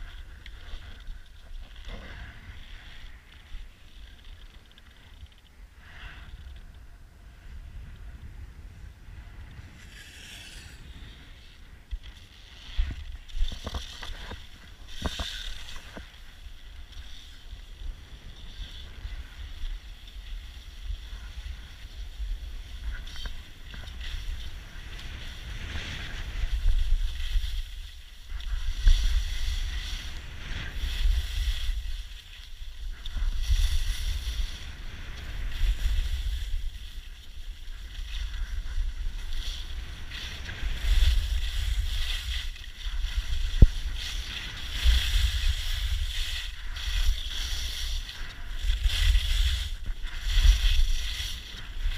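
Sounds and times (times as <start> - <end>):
skis scraping over snow: 0.0 - 51.9
wind buffeting microphone: 17.7 - 51.9.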